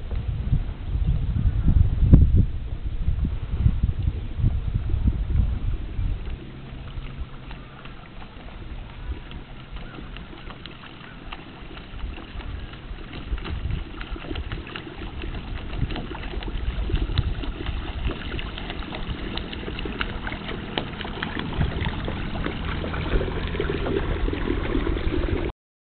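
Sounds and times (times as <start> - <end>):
wind rumbling on microphone: 0.0 - 25.5
small waves lapping and splashing: 4.8 - 25.5.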